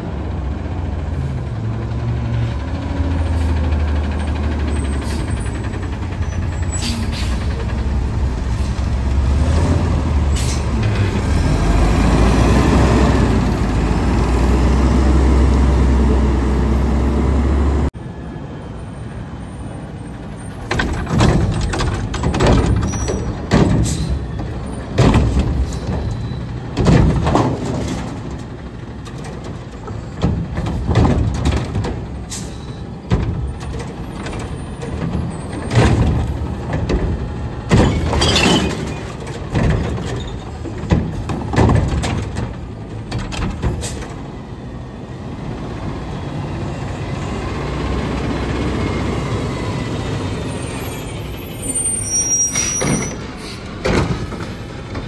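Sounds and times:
garbage truck engine running: 0.0 - 17.9, 20.1 - 55.0
loud clunks and bangs: 20.6 - 44.3, 52.8 - 55.0.

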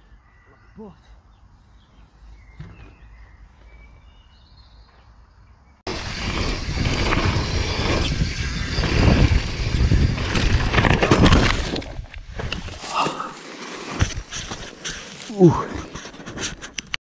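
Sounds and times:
wind buffeting microphone: 5.9 - 12.7
bike tyre rumble: 5.9 - 16.7
bike knocks and rattles: 6.1 - 12.8.

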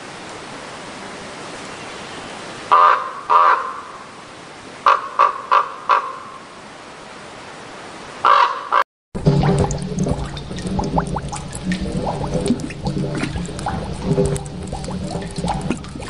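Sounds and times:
harsh crow-like bird calls: 2.7 - 4.1, 4.8 - 6.4, 8.2 - 8.8.

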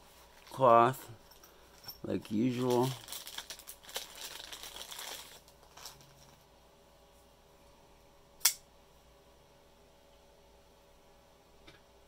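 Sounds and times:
plastic bag crinkling: 2.0 - 6.4.

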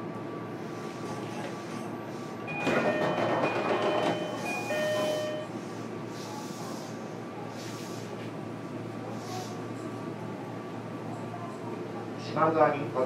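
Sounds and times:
high ringing tones: 2.5 - 5.5.

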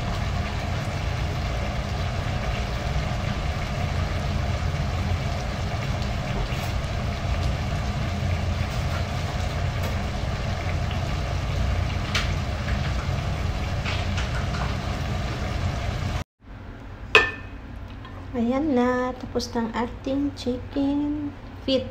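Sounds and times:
pot boiling and bubbling: 0.0 - 16.2.

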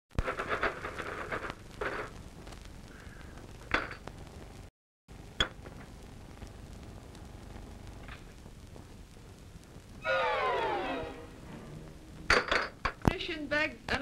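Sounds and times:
glass bottles set down on bricks: 12.3 - 13.0.

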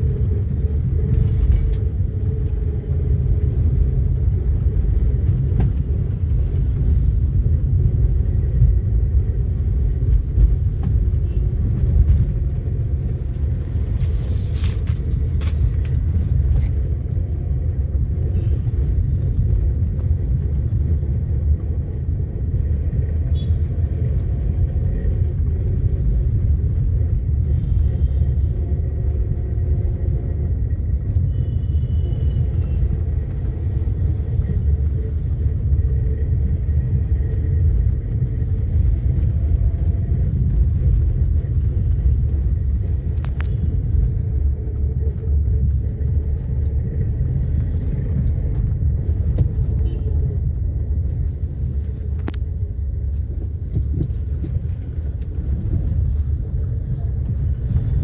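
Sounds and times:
car engine and road noise: 0.0 - 58.0.

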